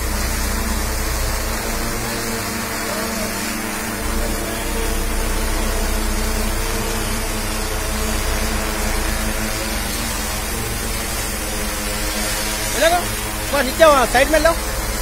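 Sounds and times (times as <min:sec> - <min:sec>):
drone rotors buzzing: 0:00.0 - 0:15.0.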